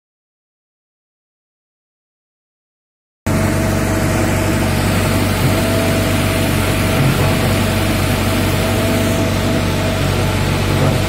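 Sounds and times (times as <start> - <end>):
excavator diesel engine droning: 3.3 - 11.0.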